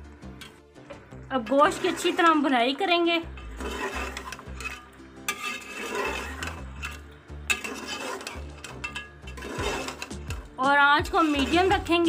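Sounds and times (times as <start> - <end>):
soft background music: 0.0 - 12.0
ladle scraping meat frying in oil: 1.4 - 2.6, 3.2 - 12.0
ladle clinking against pot: 4.1 - 10.2.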